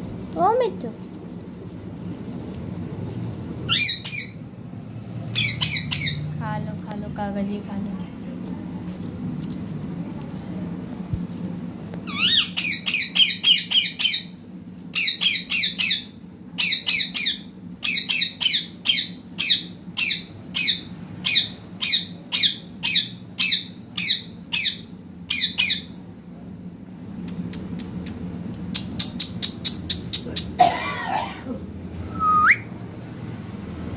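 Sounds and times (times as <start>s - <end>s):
parakeet squawking: 3.7s - 4.4s, 5.3s - 6.4s, 12.0s - 14.3s, 15.0s - 25.9s.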